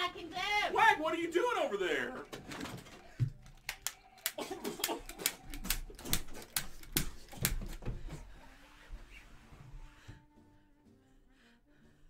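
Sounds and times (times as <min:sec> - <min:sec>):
sharp clicks and smacks: 0:03.3 - 0:08.0.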